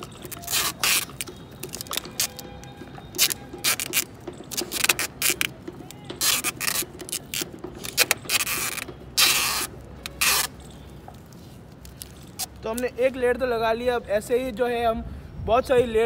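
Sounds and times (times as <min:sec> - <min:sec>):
packing tape pulled off roll: 0:00.0 - 0:10.6.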